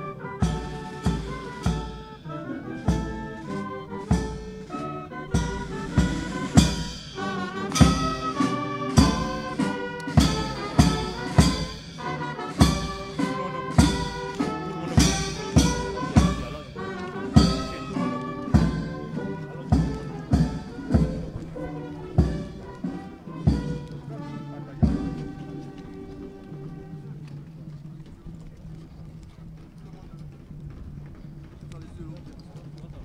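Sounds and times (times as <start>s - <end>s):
brass band playing a march: 0.0s - 27.4s
strong drum beat: 0.4s - 2.2s, 5.3s - 24.1s.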